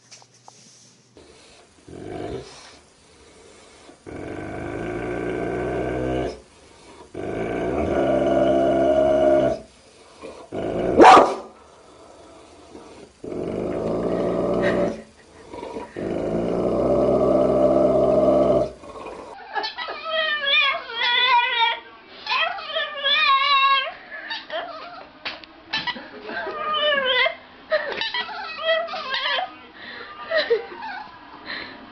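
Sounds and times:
dog growling: 1.2s - 19.4s.

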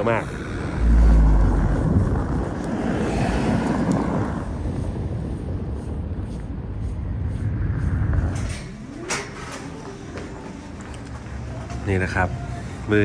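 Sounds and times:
cars driving on snowy street: 0.0s - 8.7s.

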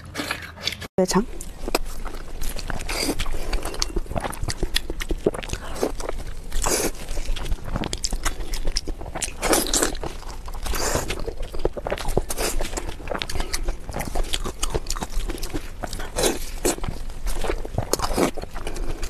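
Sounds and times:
person chewing meat: 0.0s - 19.0s.

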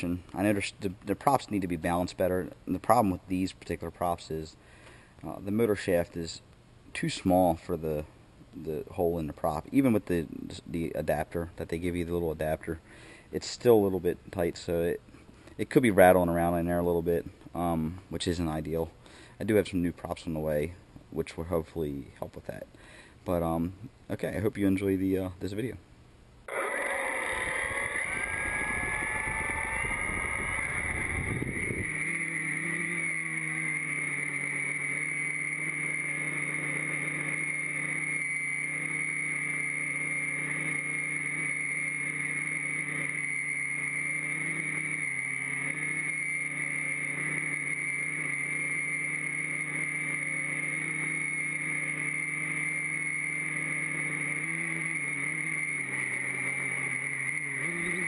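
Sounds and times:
quadcopter motors whining: 26.5s - 58.0s.

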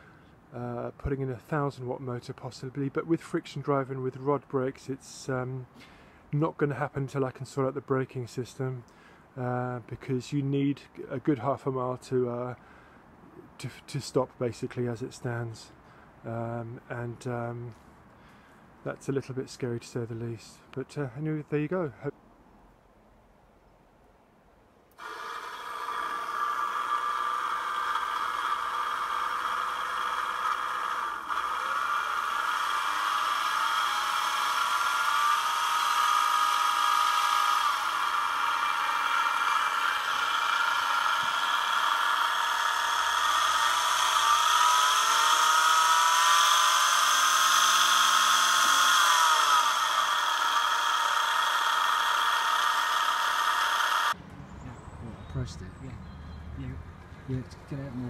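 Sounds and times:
electric motor whine: 25.0s - 54.2s.

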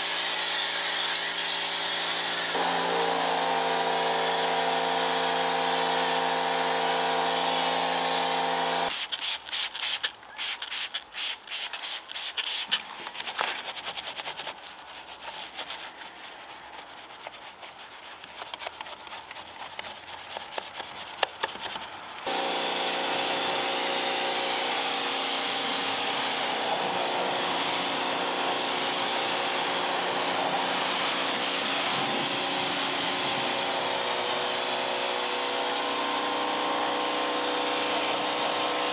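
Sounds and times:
vacuum cleaner running: 2.2s - 8.9s, 22.3s - 38.9s
scrubbing strokes: 8.9s - 22.3s.

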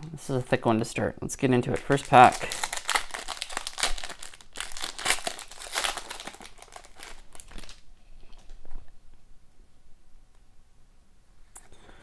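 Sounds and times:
foil wrapper crinkling and tearing: 1.7s - 8.6s.

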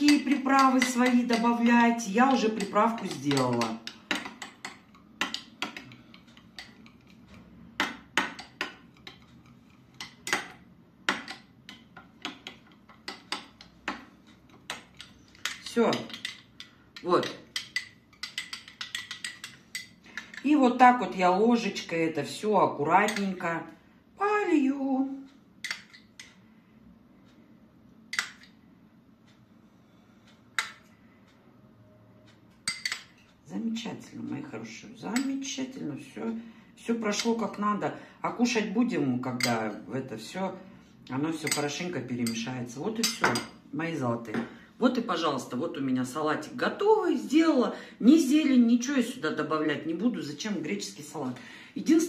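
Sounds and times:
metal spoon clinking on bowl: 0.0s - 7.2s, 7.8s - 20.6s, 23.0s - 23.4s, 32.6s - 33.3s, 35.1s - 35.5s, 39.3s - 39.8s, 41.4s - 43.6s.

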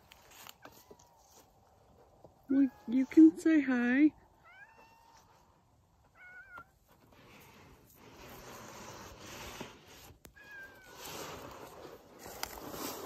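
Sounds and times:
background noise hiss: 0.0s - 13.0s
cat meowing: 4.4s - 5.4s, 6.1s - 6.7s, 10.3s - 11.0s.

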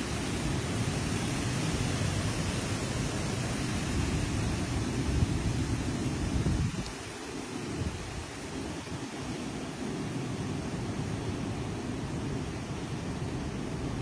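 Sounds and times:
rain: 0.0s - 14.0s
wind buffeting microphone: 2.7s - 10.0s.

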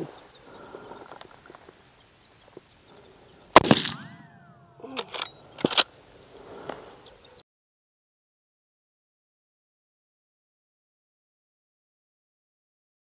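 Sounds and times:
rifle shot crack: 3.5s - 5.9s
sharp clicks: 4.9s - 5.9s.

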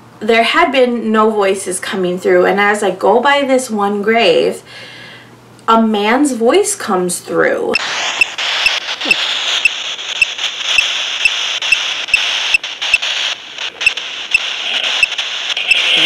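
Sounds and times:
radio static hiss: 7.8s - 16.0s.

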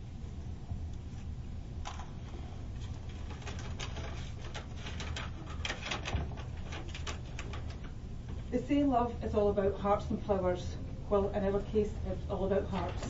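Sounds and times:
low room hum: 0.0s - 13.0s
paper rustling and crackling: 1.8s - 7.9s.

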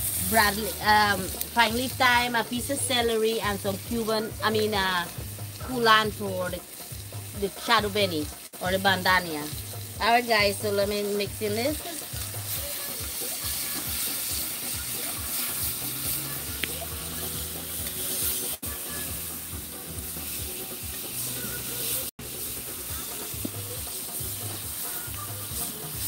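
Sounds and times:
food sizzling: 0.0s - 26.0s
metal spoon stirring in pan: 11.7s - 18.6s.

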